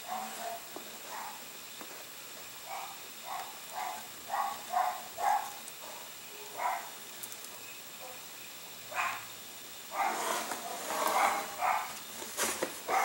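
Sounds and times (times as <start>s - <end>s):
dog barking faintly: 9.9s - 12.0s.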